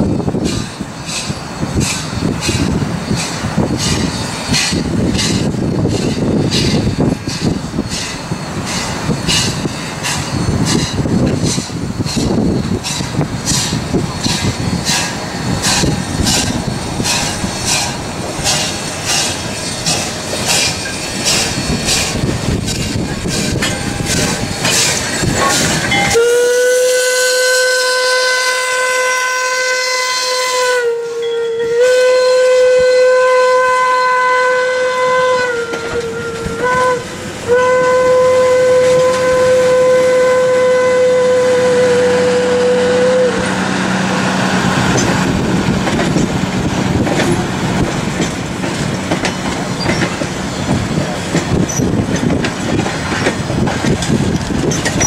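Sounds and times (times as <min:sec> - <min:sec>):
train cars clattering over rails: 0:00.0 - 0:26.2, 0:43.0 - 0:55.0
steam locomotive whistle: 0:23.4 - 0:45.7.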